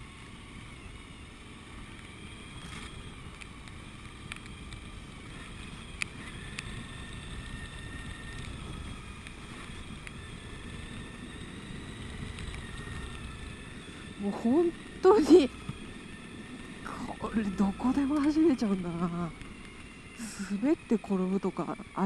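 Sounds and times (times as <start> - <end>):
motorcycle engine running: 0.0 - 22.0
wind rumble on microphone: 0.0 - 22.0
faint wavering higher tones: 5.2 - 22.0.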